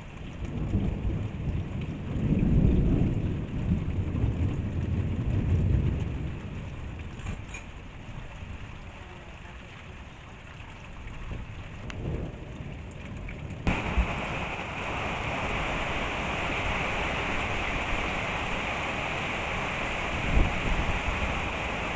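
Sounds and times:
light rain: 0.0s - 21.9s
heavy rain hissing: 13.7s - 21.9s.

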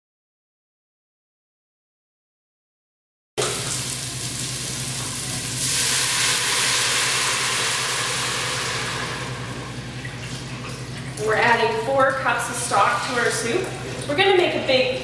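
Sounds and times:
vegetables sizzling in oil: 3.4s - 9.5s
broth pouring into hot pot: 3.4s - 11.2s.

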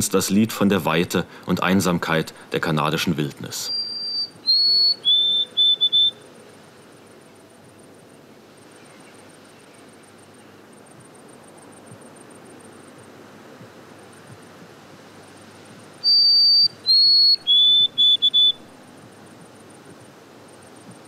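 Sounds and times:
sparrow singing clear whistles: 3.6s - 6.2s, 16.0s - 18.7s.

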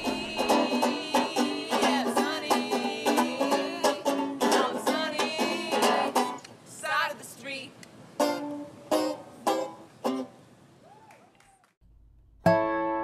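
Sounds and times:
banjo picking a lively tune: 0.0s - 6.4s, 8.2s - 10.3s.

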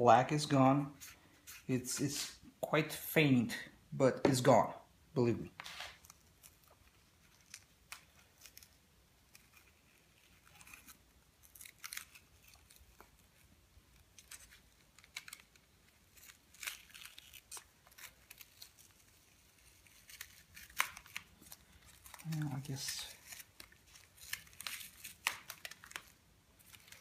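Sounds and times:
masking tape crackling and peeling: 5.5s - 27.0s.

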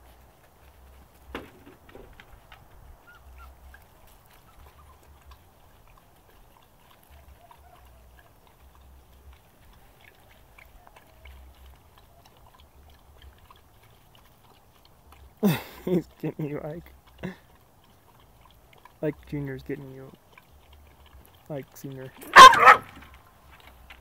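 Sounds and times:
dogs scuffling on dirt: 0.0s - 24.0s
faint puppy squeaks: 3.0s - 3.8s, 4.4s - 5.2s, 7.1s - 8.3s, 10.6s - 12.6s.

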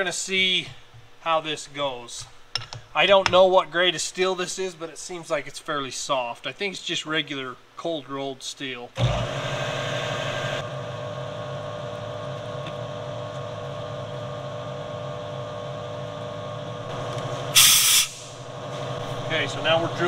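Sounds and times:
milling machine spindle running: 9.0s - 17.6s, 18.4s - 20.0s
compressed air blow gun hiss: 17.5s - 18.4s.

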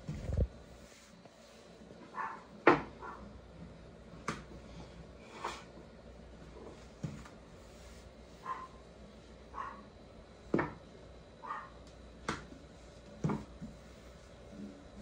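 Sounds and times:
soft brushing: 0.2s - 1.9s, 6.8s - 8.7s.

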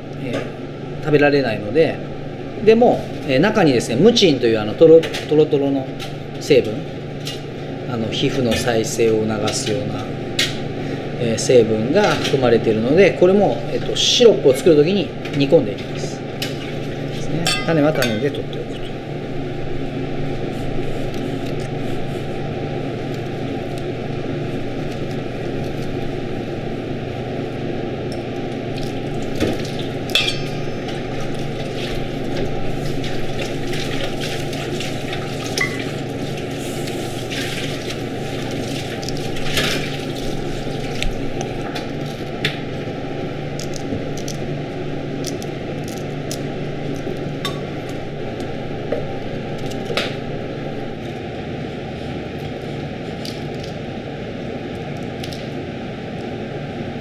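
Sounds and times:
steady background hum: 0.0s - 57.0s
knife and pods clinking on steel bowl: 17.4s - 18.4s.

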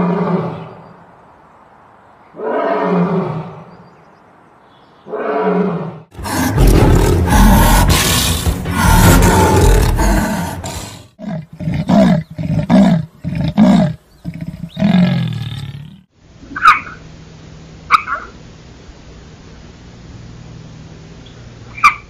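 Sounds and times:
lion roaring: 5.1s - 16.1s
lion grunting: 6.1s - 16.1s
faint steady hiss: 13.0s - 21.8s.

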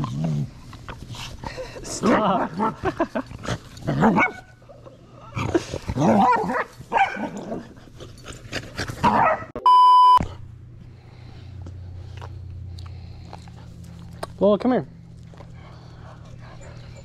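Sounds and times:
dogs barking and snarling: 0.0s - 9.6s, 12.2s - 14.4s, 15.0s - 17.0s
electronic test-tone beep: 9.6s - 10.2s.

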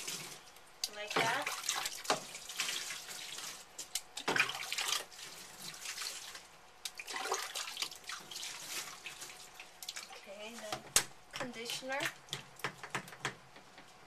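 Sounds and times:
water splashing over a puppy: 0.0s - 3.6s, 4.2s - 10.4s.

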